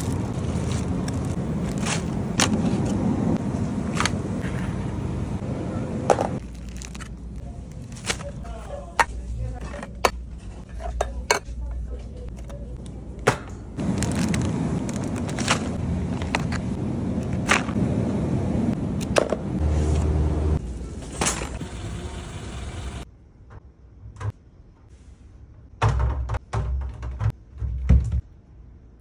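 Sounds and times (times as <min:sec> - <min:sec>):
store background rumble: 0:00.0 - 0:23.1.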